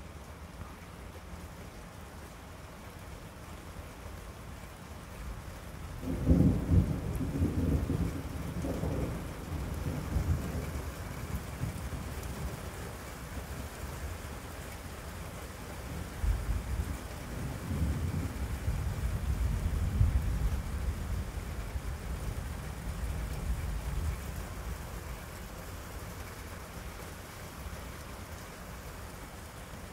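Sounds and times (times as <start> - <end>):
steady rain falling: 0.0 - 29.9
rolling thunder: 6.0 - 12.0.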